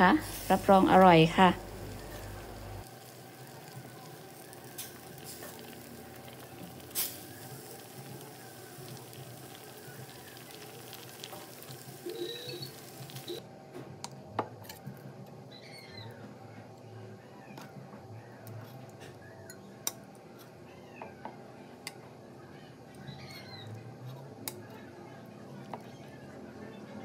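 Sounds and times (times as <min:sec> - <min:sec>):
curry bubbling and sizzling: 0:00.2 - 0:13.4.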